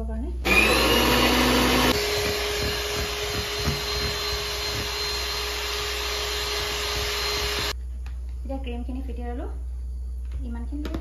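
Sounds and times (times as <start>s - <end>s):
mixer-grinder blending: 0.4s - 7.8s
electric hand mixer beating cream: 0.5s - 7.8s.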